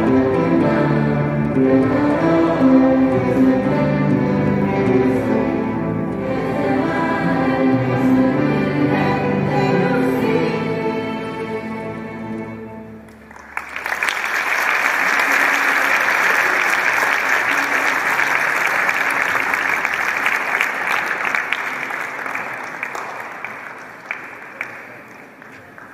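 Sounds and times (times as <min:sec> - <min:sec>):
choir and orchestra held chord: 0:00.0 - 0:13.3
audience applauding: 0:13.1 - 0:25.9.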